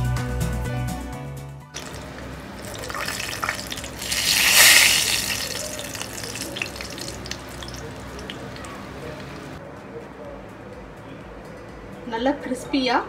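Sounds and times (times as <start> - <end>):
hot oil sizzling and crackling: 1.8 - 9.6.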